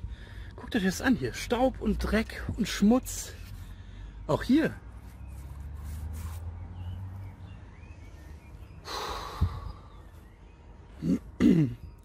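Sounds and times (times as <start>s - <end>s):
sharp breath out through the nose: 8.8s - 10.1s.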